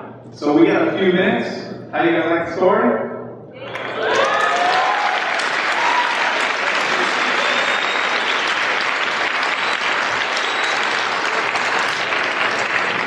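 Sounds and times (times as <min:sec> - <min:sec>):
person whooping: 0:03.6 - 0:08.4
crowd applauding: 0:03.6 - 0:13.0.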